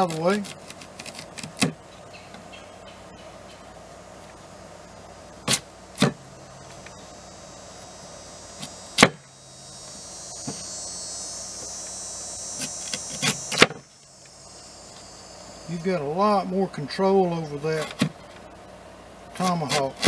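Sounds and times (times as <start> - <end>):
steady high buzz: 0.0 - 20.0
blade chopping on wooden board: 5.5 - 6.2, 8.6 - 9.2, 12.9 - 13.8.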